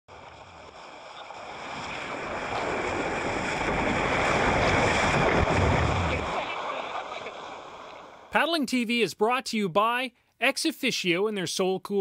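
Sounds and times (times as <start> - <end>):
rushing water: 0.1 - 8.5.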